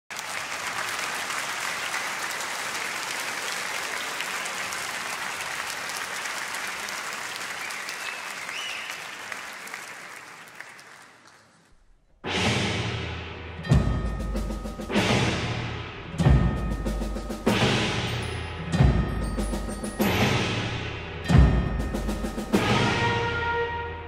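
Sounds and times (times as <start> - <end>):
audience applauding: 0.1 - 11.8
timpani: 12.2 - 24.0
brass band playing: 12.3 - 24.0.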